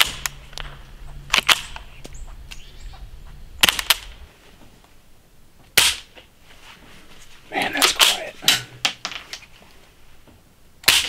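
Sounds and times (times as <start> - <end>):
suppressed rifle shots: 0.0 - 0.7, 1.3 - 1.8, 3.6 - 4.2
faint bird chirps: 1.8 - 3.2.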